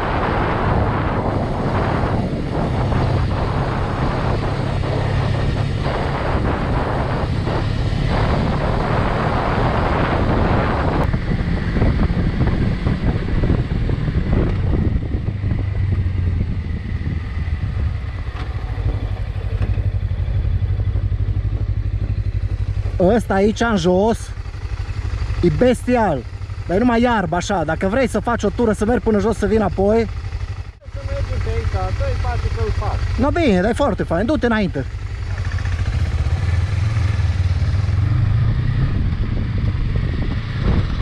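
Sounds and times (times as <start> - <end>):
wind rush on microphone: 0.0 - 26.3, 34.3 - 41.0
motorcycle engine running: 0.0 - 41.0.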